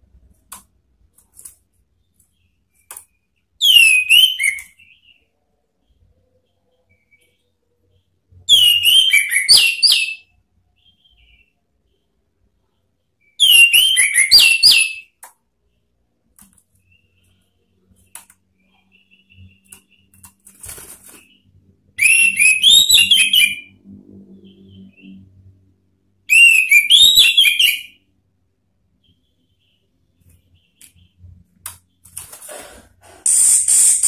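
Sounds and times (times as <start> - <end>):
thrush singing whistled notes: 3.6 - 5.2, 8.5 - 11.4, 21.1 - 23.8, 26.3 - 28.0.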